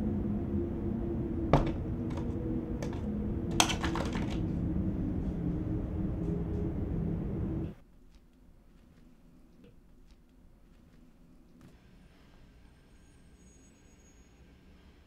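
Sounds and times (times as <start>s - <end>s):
low droning rumble: 0.0s - 7.8s.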